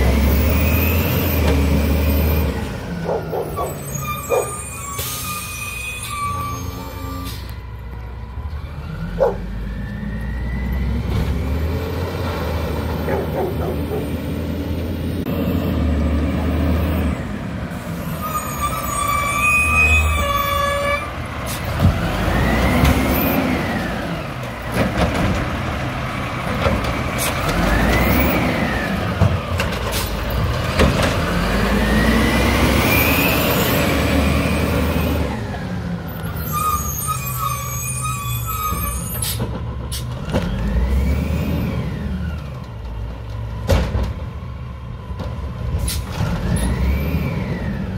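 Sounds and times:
diesel engine revving: 0.0 - 47.9
high squeal: 3.4 - 7.6, 17.9 - 21.1, 36.2 - 39.4
knocks and clanks of garbage truck arm: 30.6 - 31.2, 43.6 - 44.4.

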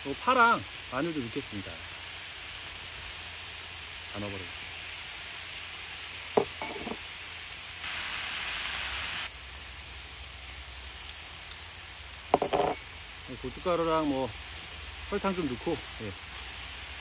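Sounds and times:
meat sizzling on a griddle pan: 0.0 - 17.0
metal tongs clinking on pan: 6.4 - 7.0.

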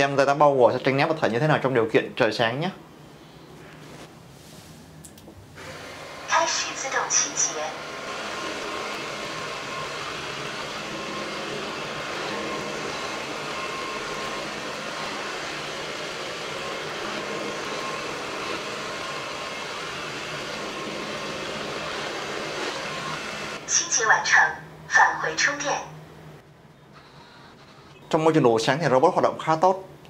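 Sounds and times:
robot vacuum whirring: 5.6 - 24.2.

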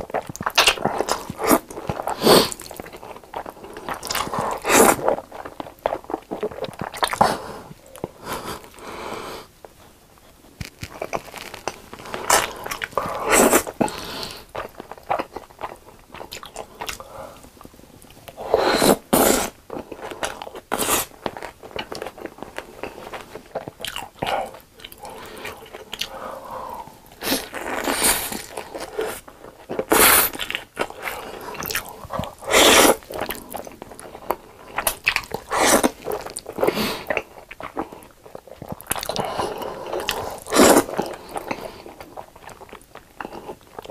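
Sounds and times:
crunchy bites and chewing: 10.6 - 13.8
slurping noodles: 29.8 - 33.5.

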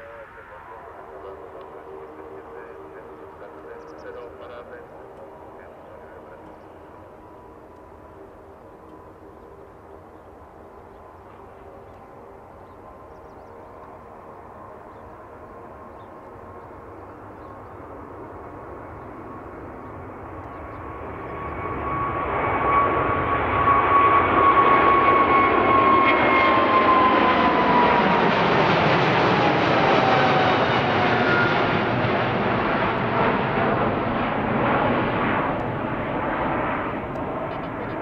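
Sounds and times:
jet engines at takeoff thrust: 0.0 - 38.0
steady high whine: 0.0 - 38.0.

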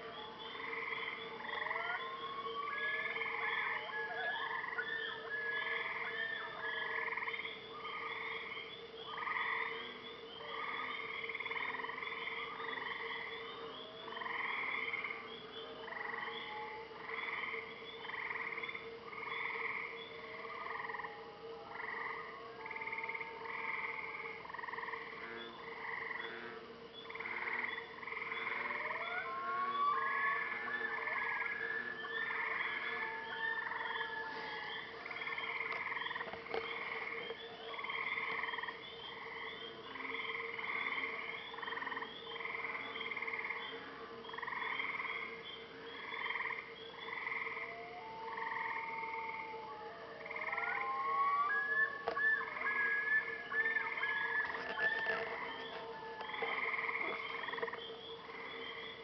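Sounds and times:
frogs croaking: 0.0 - 59.0
thin whistled glides: 50.8 - 56.6.

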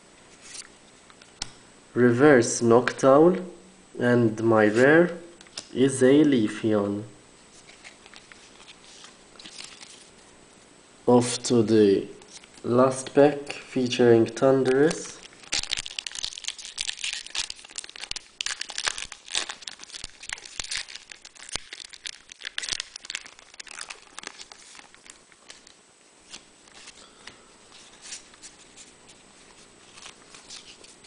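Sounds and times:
cards being handled: 7.5 - 10.2, 22.4 - 31.0
foil wrapper tearing and crinkling: 14.9 - 26.9.

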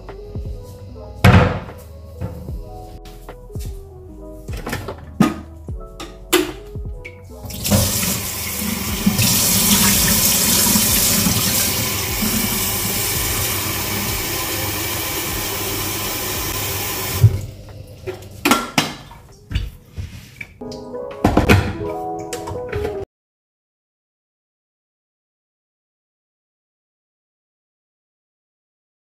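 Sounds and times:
tap water filling kettle: 7.7 - 18.2.

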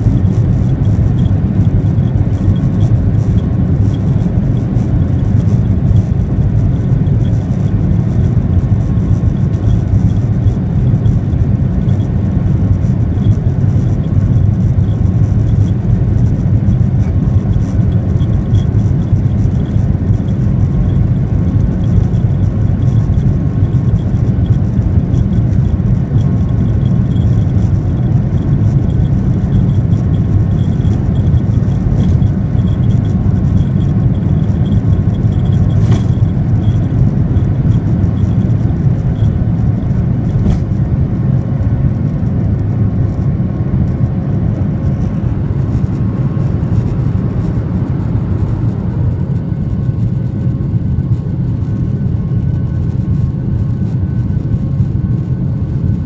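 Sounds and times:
jet engines rumbling in cabin: 0.0 - 56.0.

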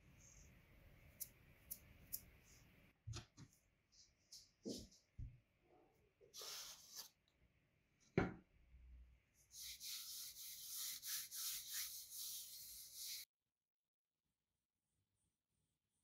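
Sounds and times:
hand rubbing rolling pin: 9.6 - 13.2.

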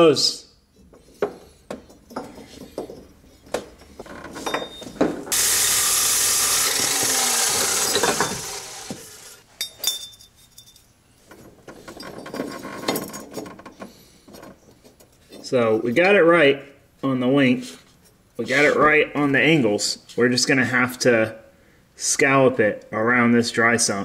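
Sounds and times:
metal parts clinking and knocking: 0.8 - 5.3, 7.7 - 8.6, 9.6 - 15.5
chop saw cutting steel: 5.3 - 9.4.

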